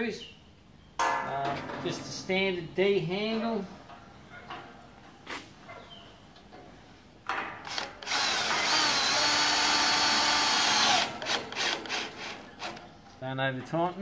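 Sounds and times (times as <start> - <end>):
power drill whining: 7.6 - 12.8.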